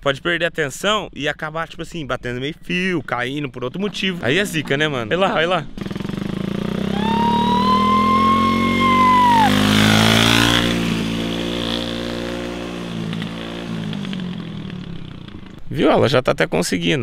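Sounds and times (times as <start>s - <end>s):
motorcycle passing by: 5.8s - 15.5s.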